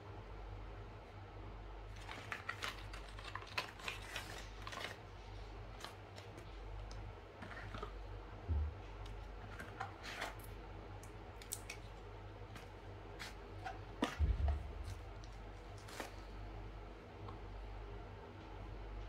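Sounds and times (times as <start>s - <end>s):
steady low hum: 0.0s - 19.0s
cardboard and paper crinkling: 1.9s - 8.0s, 9.4s - 10.5s, 12.5s - 16.3s
dull low thump: 8.5s - 8.8s, 14.2s - 14.9s.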